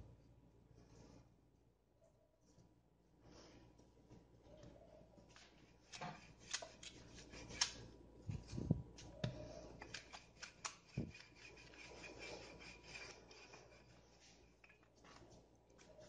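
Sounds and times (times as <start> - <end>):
rolling pin rubbing dough: 8.3 - 14.6.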